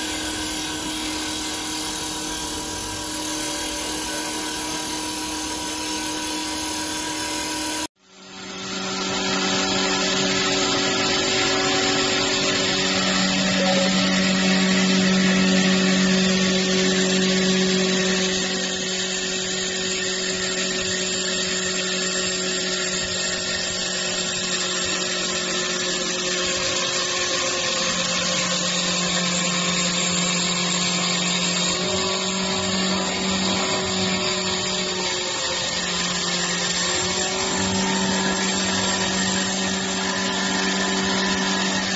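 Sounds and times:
wood being cut rasping: 0.0 - 7.9, 26.4 - 41.9
lathe motor hum and whine: 0.0 - 41.9.

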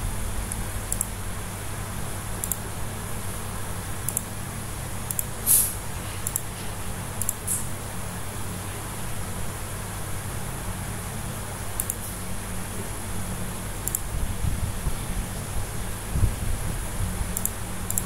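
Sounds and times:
low hum: 0.0 - 4.2
computer mouse clicking: 0.5 - 1.2, 2.4 - 2.7, 4.0 - 4.3, 5.0 - 5.4, 6.2 - 6.5, 7.2 - 7.6, 11.8 - 12.0, 13.8 - 14.1, 17.3 - 18.0.

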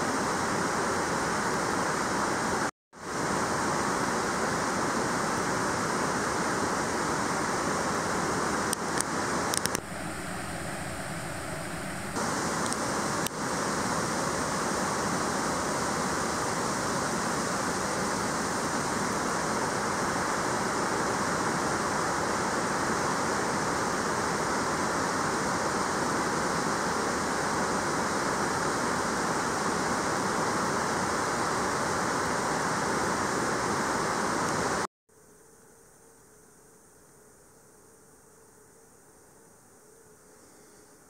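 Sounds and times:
faint hum: 0.0 - 31.9, 33.4 - 41.0
steady rushing noise: 1.7 - 21.8.

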